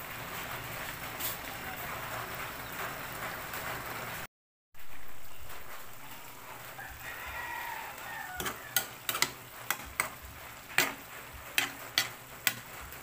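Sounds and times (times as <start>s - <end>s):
pot simmering hiss: 0.0s - 13.0s
metal ladle scraping a pot: 8.3s - 12.7s.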